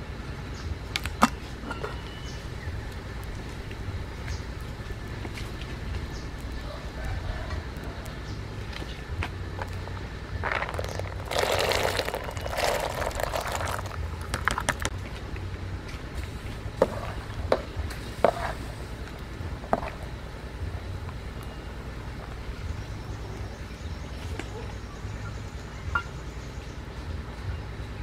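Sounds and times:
seeds poured splashing into liquid: 10.4 - 14.9.

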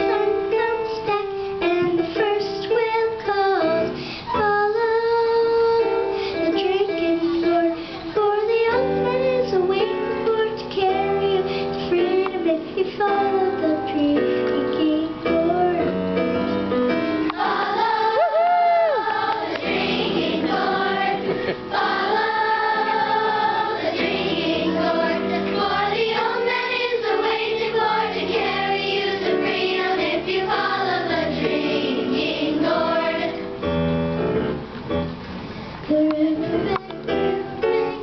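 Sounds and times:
children's choir singing: 17.3 - 18.2, 18.9 - 33.6.

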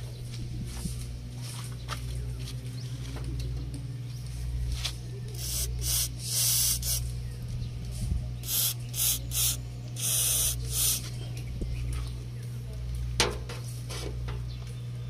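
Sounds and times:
aerosol can spraying: 5.4 - 7.0, 8.4 - 11.1.

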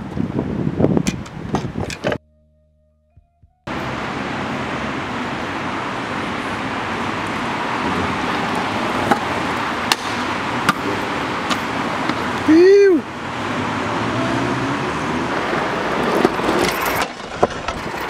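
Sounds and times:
city street traffic: 3.6 - 18.0.

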